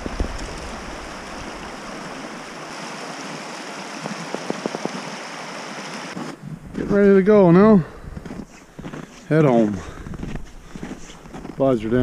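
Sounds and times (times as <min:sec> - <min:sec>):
river rushing over stones: 0:00.0 - 0:06.4.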